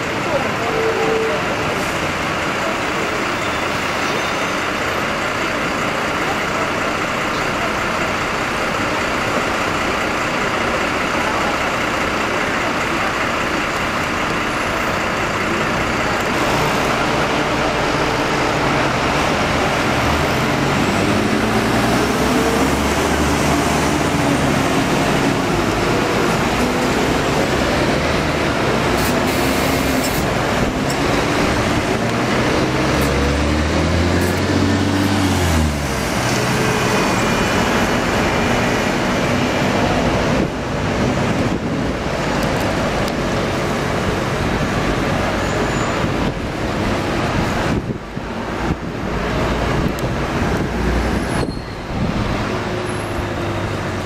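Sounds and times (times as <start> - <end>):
engine and road noise: 0.0 - 54.0
bus engine note rising and falling: 1.2 - 54.0.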